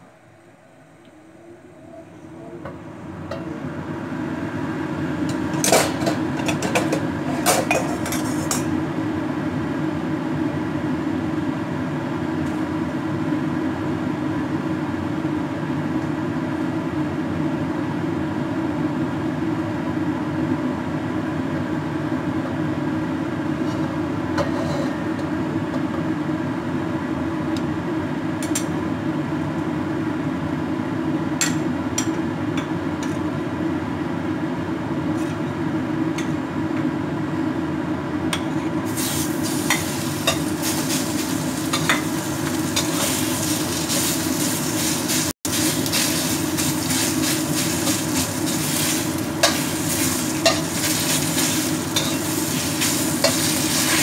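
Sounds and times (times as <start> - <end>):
low mechanical hum: 0.0 - 54.0
kitchenware clinking: 5.6 - 8.7, 39.6 - 43.2, 49.4 - 54.0.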